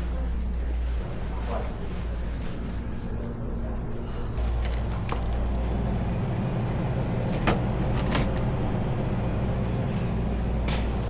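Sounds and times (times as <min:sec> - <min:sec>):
drink cooler humming: 0:04.1 - 0:11.0.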